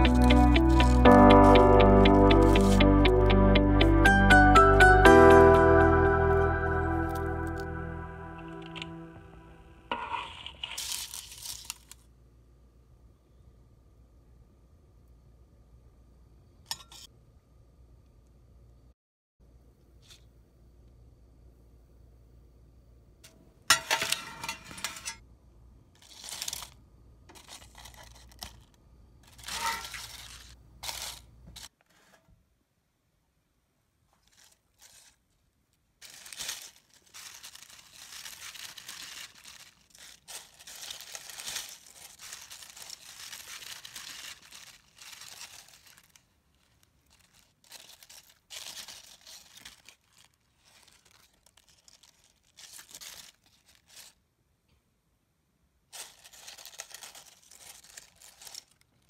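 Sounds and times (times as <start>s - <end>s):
kale chips crackling: 0.0s - 3.0s, 6.3s - 12.1s, 26.0s - 26.8s, 27.4s - 31.7s, 34.2s - 35.3s, 36.0s - 54.2s, 56.0s - 59.0s.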